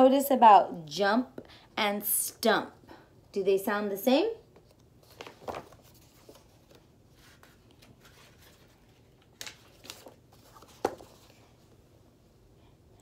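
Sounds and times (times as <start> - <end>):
book pages rustling and flapping: 4.5 - 11.8.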